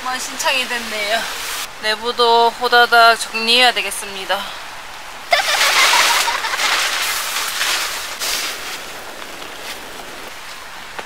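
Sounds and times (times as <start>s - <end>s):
bags rustling and shuffling: 5.3s - 10.6s.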